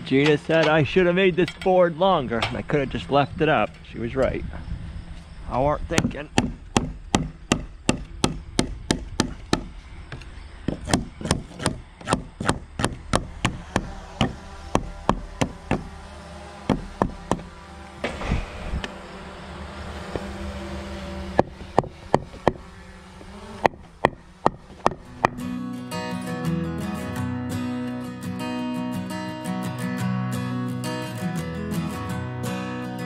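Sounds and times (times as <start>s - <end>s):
hammer striking wood: 6.0s - 9.7s, 10.7s - 15.9s, 16.6s - 19.0s, 21.3s - 22.6s, 23.2s - 25.4s.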